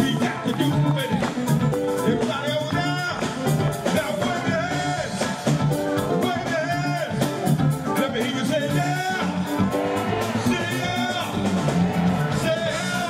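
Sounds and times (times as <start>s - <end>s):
drum beat: 0.0s - 13.0s
funk band playing: 0.0s - 13.0s
saxophone horn section: 8.1s - 13.0s.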